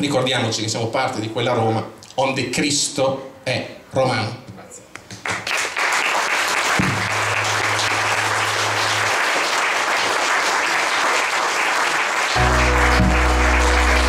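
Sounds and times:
audience applauding: 5.2s - 14.0s
background music: 12.4s - 14.0s.

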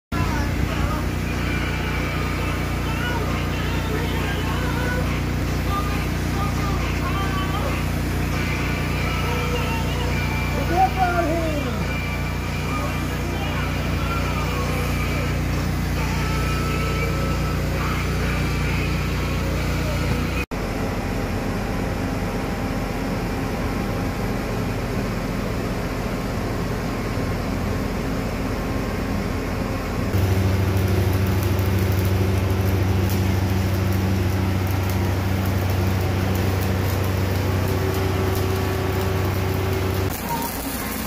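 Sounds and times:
deep steady hum: 0.1s - 40.7s
welder engine droning: 0.1s - 41.0s
arc welding hiss and crackle: 0.2s - 20.5s, 30.1s - 41.0s.

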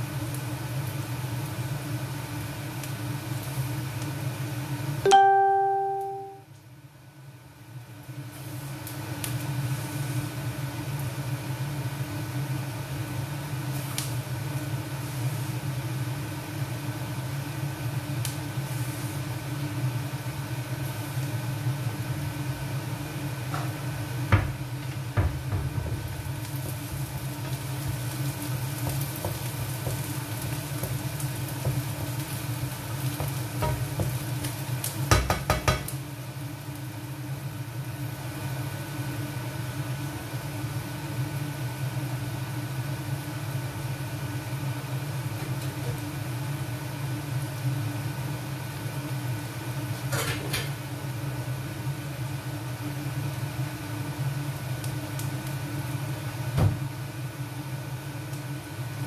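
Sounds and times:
induction hob hum: 0.0s - 59.0s
onions sizzling in a pan: 0.0s - 59.0s
ringing tone: 5.1s - 6.4s.

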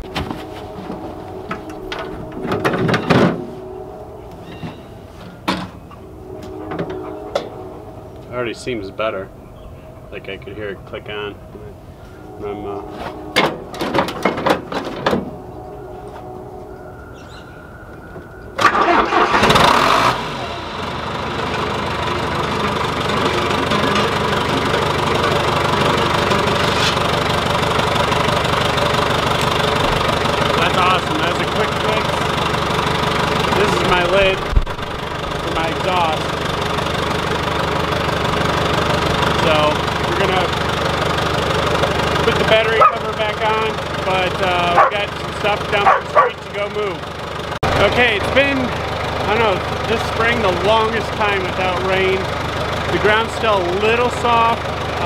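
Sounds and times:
diesel engine turning over: 0.0s - 8.7s, 9.3s - 55.0s
metal clunks: 13.3s - 15.4s
starter motor cranking: 18.6s - 20.4s.

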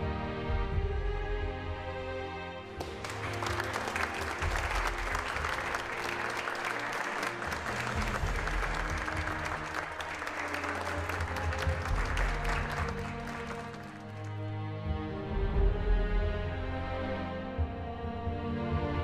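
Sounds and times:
background music: 0.0s - 19.0s
crowd applauding: 2.7s - 14.4s.

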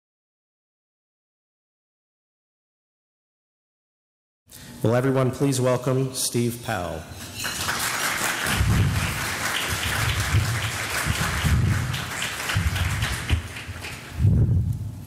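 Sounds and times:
audience applauding: 7.4s - 14.2s.

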